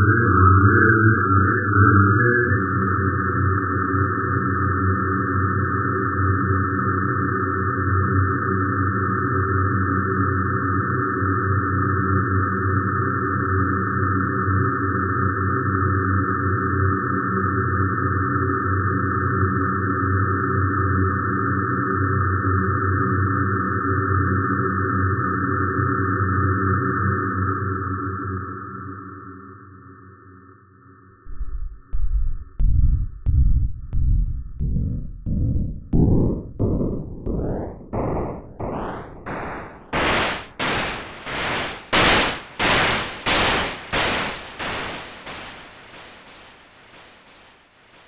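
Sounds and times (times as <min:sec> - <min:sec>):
higher band of synth tones: 0:31.3 - 0:47.4
low synthesizer drone cluster: 0:31.3 - 0:47.5.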